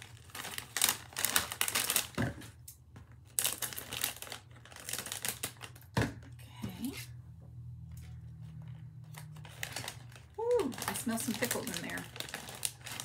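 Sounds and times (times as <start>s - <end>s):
chip bag crackling: 0.0s - 2.2s, 3.2s - 5.9s, 9.1s - 13.0s.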